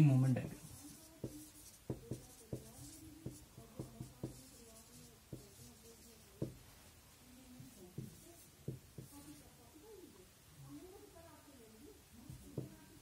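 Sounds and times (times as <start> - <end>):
marker pen writing on whiteboard: 0.5 - 6.8, 7.5 - 9.4, 12.3 - 13.0.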